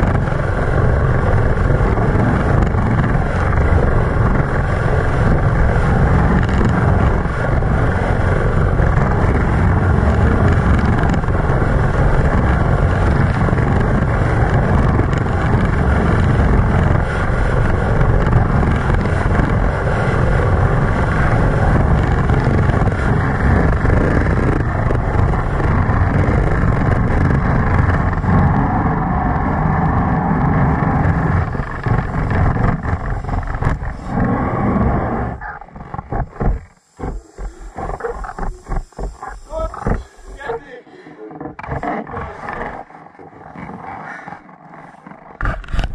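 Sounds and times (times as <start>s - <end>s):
sled runners scraping on ice: 0.1s - 45.9s
air rushing: 30.2s - 42.8s.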